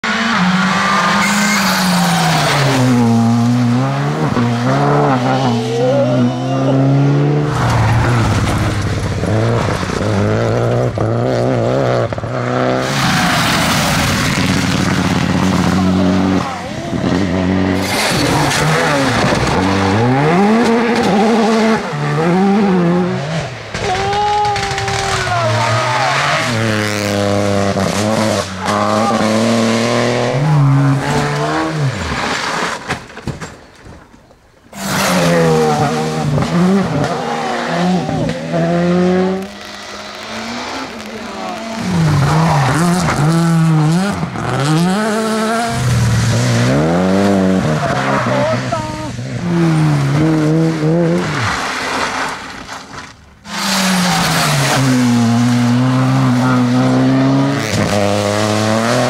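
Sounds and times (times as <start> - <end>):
rally car engines revving: 0.0 - 33.1, 34.6 - 59.0.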